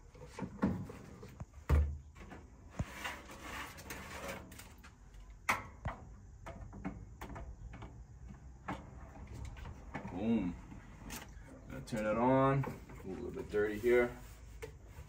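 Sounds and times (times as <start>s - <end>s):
metal tray sliding and clunking: 2.2s - 4.8s.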